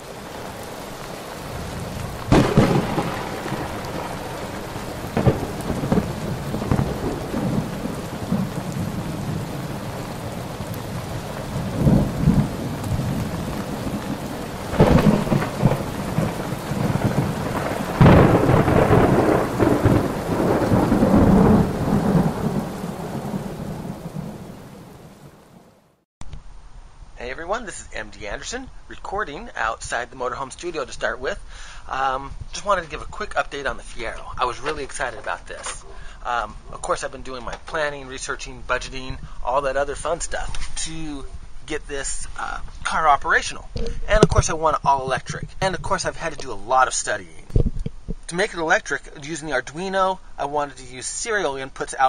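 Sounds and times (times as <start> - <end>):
thunder claps and rolls: 0.0 - 25.4
steady rain: 0.0 - 52.0.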